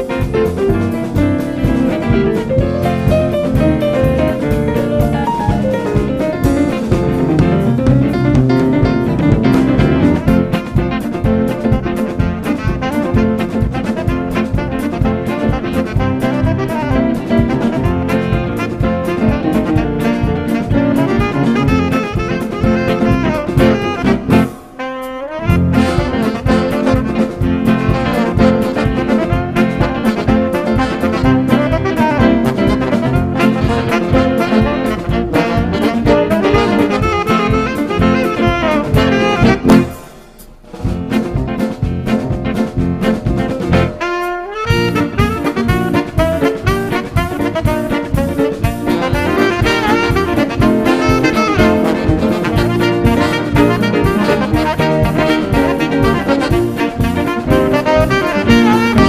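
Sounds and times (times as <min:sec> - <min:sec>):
band playing jazz music: 0:00.0 - 0:59.0
drum kit beat: 0:00.0 - 0:59.0
guitar: 0:00.0 - 0:59.0
cymbal crash: 0:39.8 - 0:41.1.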